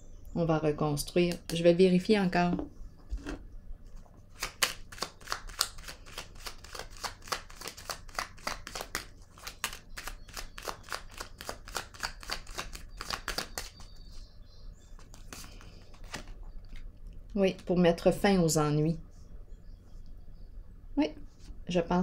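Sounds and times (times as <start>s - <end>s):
cards being shuffled: 4.3s - 13.9s, 15.0s - 16.9s.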